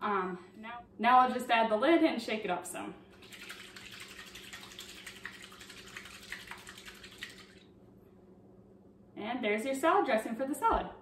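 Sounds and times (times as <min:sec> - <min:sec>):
liquid sloshing in shaker bottle: 0:03.2 - 0:07.7.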